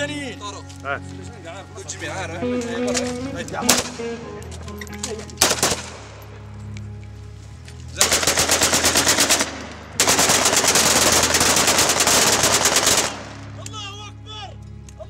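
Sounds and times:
assault rifles automatic fire: 8.0s - 13.4s.

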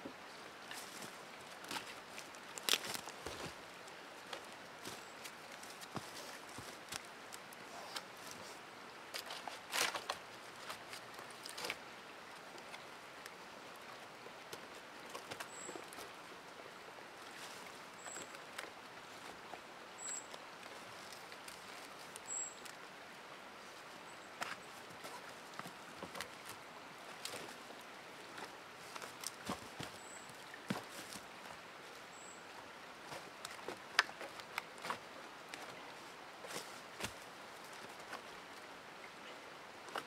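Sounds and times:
dead leaves rustling: 0.6s - 11.8s, 24.4s - 32.0s
dry sticks knocking and scraping: 9.1s - 11.8s.

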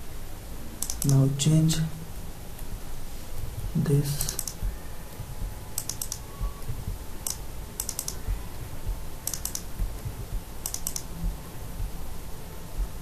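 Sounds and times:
keyboard typing: 0.8s - 1.3s, 4.1s - 8.3s, 9.2s - 11.2s.

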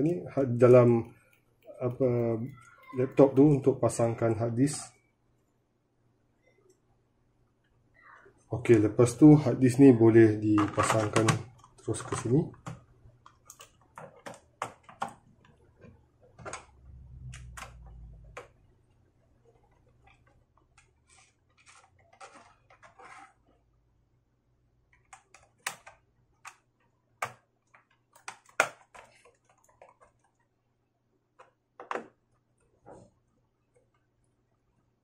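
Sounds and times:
plastic and metal clicks: 24.9s - 30.3s.

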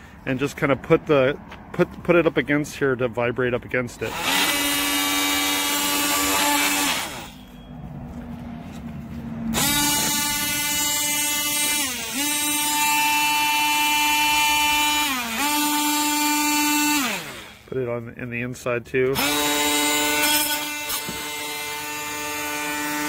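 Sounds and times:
oscillating multi-tool buzzing: 4.1s - 7.6s, 9.5s - 17.7s, 19.2s - 23.0s.

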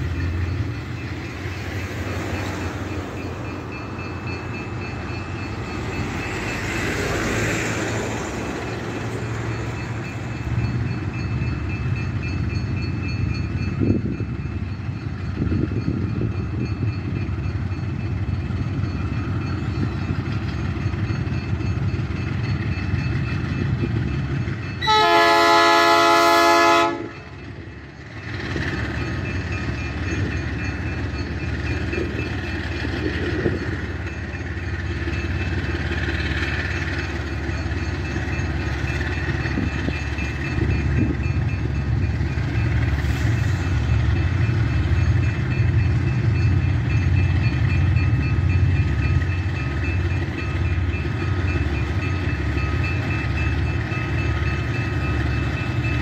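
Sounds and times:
diesel engines under load: 0.0s - 56.0s
locomotive horn blast: 24.8s - 27.3s.

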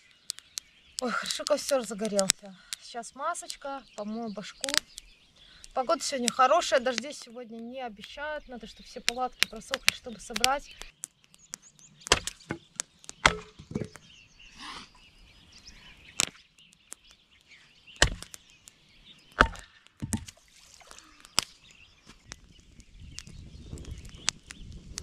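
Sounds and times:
wood being chopped: 11.5s - 14.1s, 18.0s - 18.4s, 19.4s - 20.4s.

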